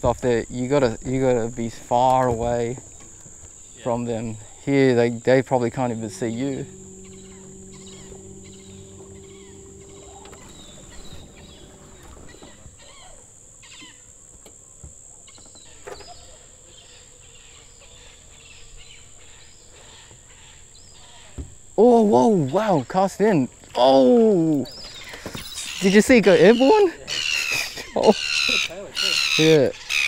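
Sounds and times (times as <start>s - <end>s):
low steady hum: 0.0s - 14.1s
cicadas droning: 0.0s - 30.0s.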